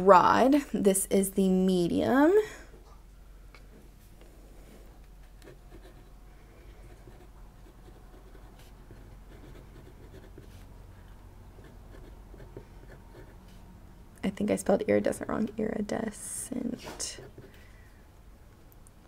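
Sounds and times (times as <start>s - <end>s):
fountain pen scratching on paper: 5.2s - 6.1s, 6.7s - 10.7s, 11.6s - 13.4s.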